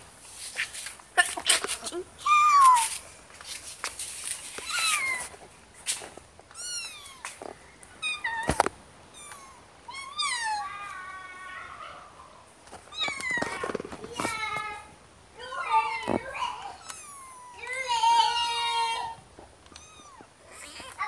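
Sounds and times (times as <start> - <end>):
kittens mewing: 6.5 - 7.4, 8.0 - 14.6, 15.7 - 21.0.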